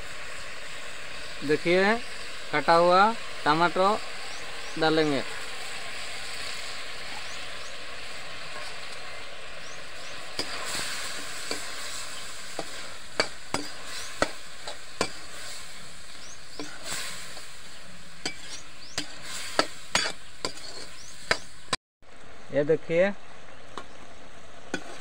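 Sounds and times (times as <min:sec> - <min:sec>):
vegetables sizzling in hot oil: 0:00.0 - 0:21.8, 0:24.4 - 0:25.0
spatula knocking and scraping pan: 0:10.3 - 0:15.5, 0:16.5 - 0:17.5, 0:18.2 - 0:21.6, 0:24.7 - 0:25.0.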